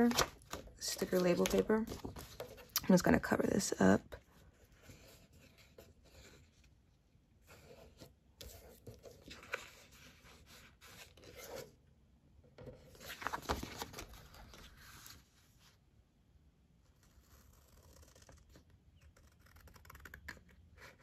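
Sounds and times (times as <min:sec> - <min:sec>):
sticker paper rustling: 0:00.0 - 0:03.2.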